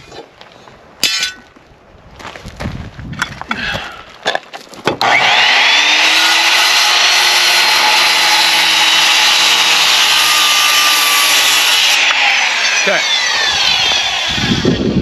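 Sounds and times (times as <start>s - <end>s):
circular saw cutting wood: 5.0s - 15.0s.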